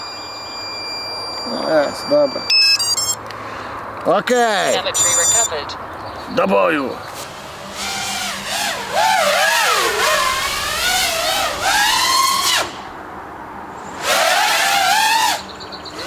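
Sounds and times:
drone motors whining: 0.0s - 3.2s, 7.2s - 12.9s, 13.9s - 16.0s.

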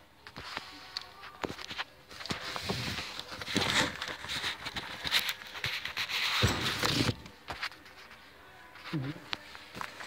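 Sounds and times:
cardboard boxes rustling and scraping: 1.4s - 8.0s.

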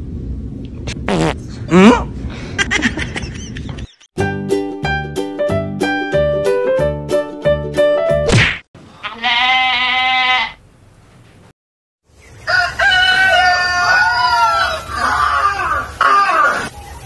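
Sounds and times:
rooster crowing: 12.4s - 16.6s.

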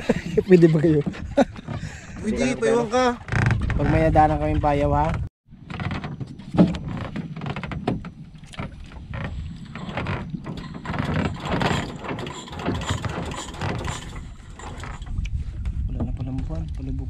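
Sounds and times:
gear knocking in boat hull: 5.1s - 15.2s.

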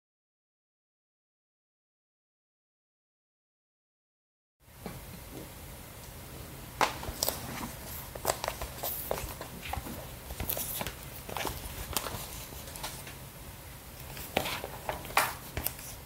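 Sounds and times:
plastic wrap crinkling: 6.8s - 13.2s.

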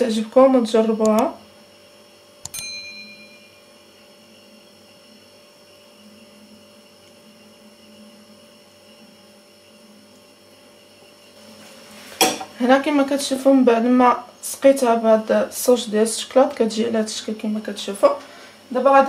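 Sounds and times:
electrical hum: 0.0s - 19.0s
metallic ping: 2.5s - 3.6s.

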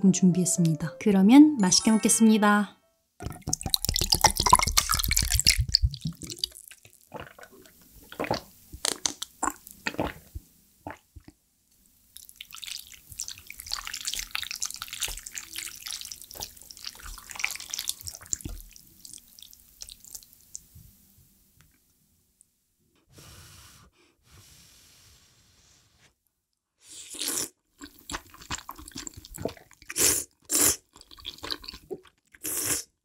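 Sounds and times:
tea pouring over ice: 3.4s - 6.8s, 12.2s - 20.3s
stirring and sloshing broth: 12.2s - 18.8s.

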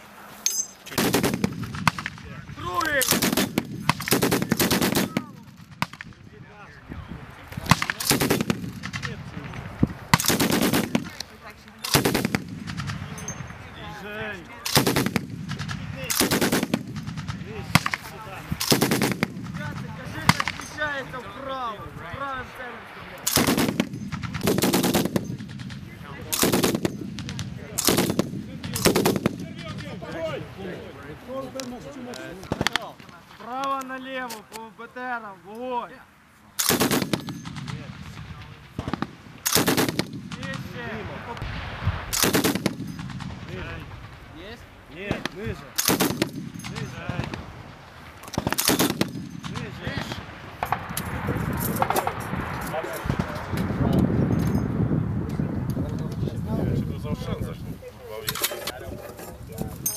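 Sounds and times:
heavy machine gun firing bursts: 1.0s - 2.1s, 3.0s - 5.9s, 7.7s - 9.1s, 10.2s - 11.1s, 11.9s - 13.0s, 14.7s - 18.0s, 18.6s - 20.5s, 23.3s - 29.4s, 36.6s - 37.8s, 38.8s - 40.6s, 42.1s - 43.4s, 45.8s - 46.6s, 48.4s - 49.6s.

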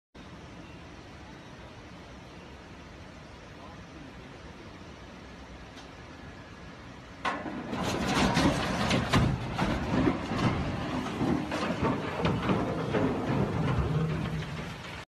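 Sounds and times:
steel crashing and clattering: 7.3s - 15.0s.

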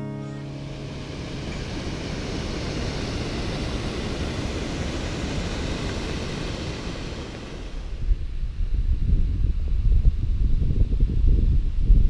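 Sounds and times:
stream rushing over rocks: 0.7s - 8.0s.

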